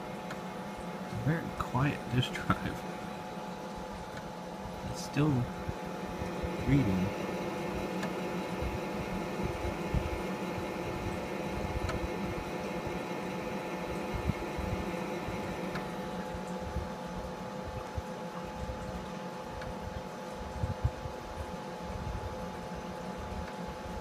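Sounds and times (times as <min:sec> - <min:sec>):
computer mechanical hum: 0:00.0 - 0:24.0
floppy drive faint ticks: 0:00.1 - 0:00.5, 0:03.5 - 0:04.4, 0:07.4 - 0:16.6, 0:19.6 - 0:20.1, 0:23.4 - 0:23.7.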